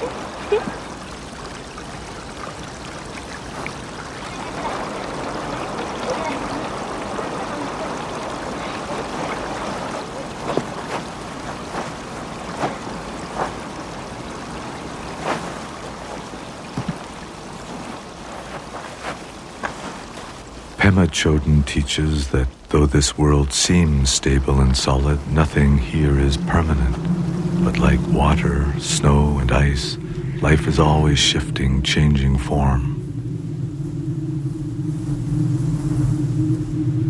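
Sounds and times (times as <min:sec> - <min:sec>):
knocks and splashes in water: 0:00.0 - 0:20.4
stream running over stones: 0:00.0 - 0:33.0.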